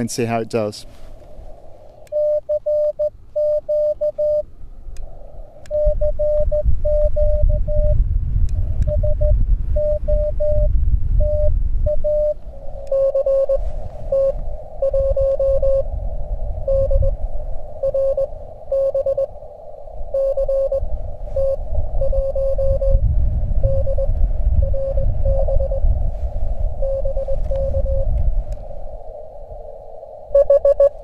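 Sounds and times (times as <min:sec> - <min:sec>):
receiver hiss: 0:00.0 - 0:31.0
wind rumbling on microphone: 0:00.0 - 0:31.0
morse code beeps: 0:02.1 - 0:04.5, 0:05.7 - 0:08.0, 0:08.8 - 0:15.9, 0:16.7 - 0:17.2, 0:17.8 - 0:19.3, 0:20.1 - 0:23.0, 0:23.6 - 0:25.8, 0:26.8 - 0:28.1, 0:30.3 - 0:31.0.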